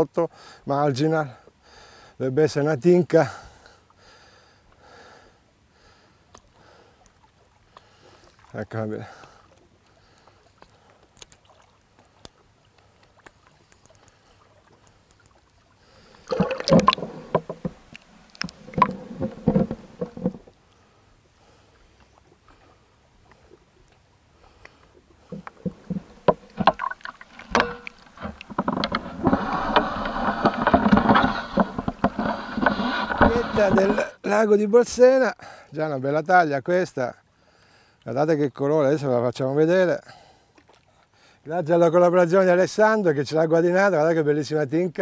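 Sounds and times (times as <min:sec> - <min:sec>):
water splashing and sloshing: 0:06.1 - 0:34.2, 0:40.3 - 0:41.5.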